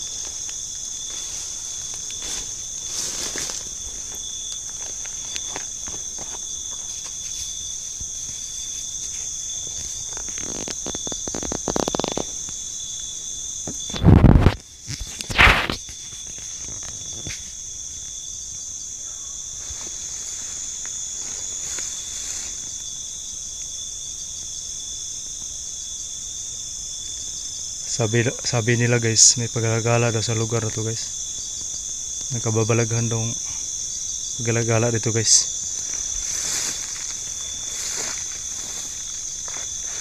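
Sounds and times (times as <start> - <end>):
footsteps rustling through plants: 0.0 - 12.3, 19.5 - 22.9, 35.5 - 40.0
crickets trilling: 0.0 - 40.0.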